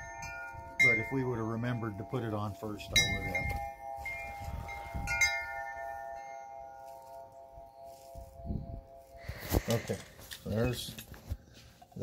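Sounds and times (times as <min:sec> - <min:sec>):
metal chime ringing: 0:00.0 - 0:09.3.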